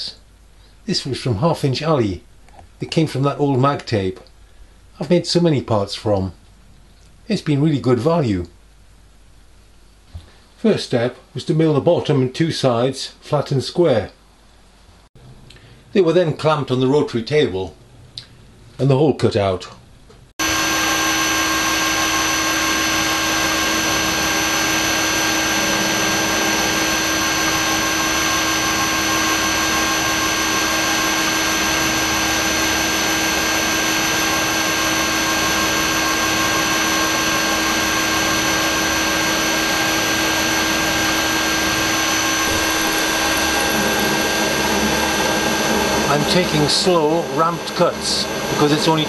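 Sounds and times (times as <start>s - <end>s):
milling machine whine: 20.4s - 49.0s.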